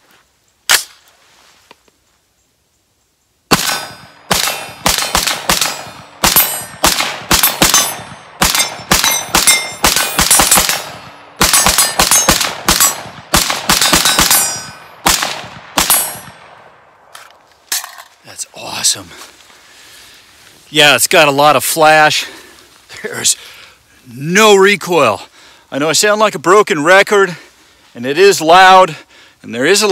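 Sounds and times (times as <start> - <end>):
rifle rapid semi-automatic fire: 3.5 - 16.3.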